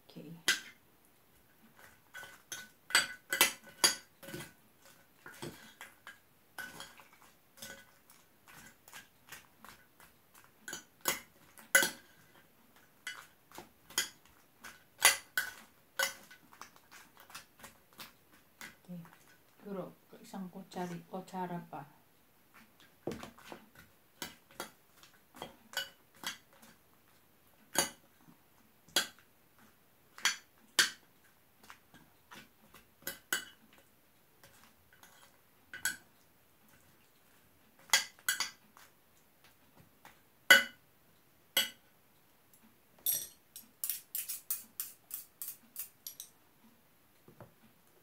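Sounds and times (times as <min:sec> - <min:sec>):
metal spoon clinking on dish: 0:02.2 - 0:04.4, 0:41.6 - 0:41.8, 0:43.0 - 0:46.3.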